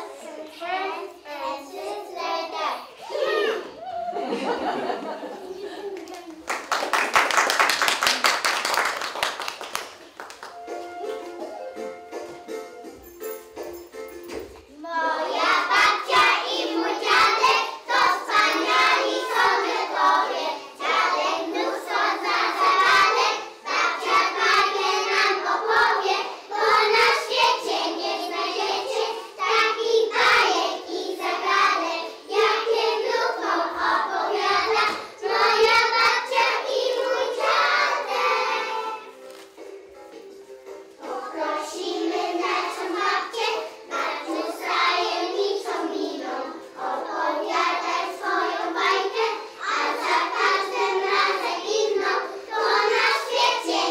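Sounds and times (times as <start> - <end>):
children singing in chorus: 14.8 - 39.2, 41.0 - 53.9.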